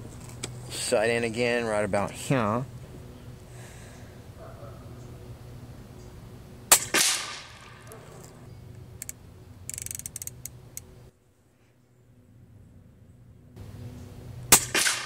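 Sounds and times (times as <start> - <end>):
air rifle shot: 6.7 - 7.8, 14.5 - 15.0
scope turret clicks: 6.7 - 10.9.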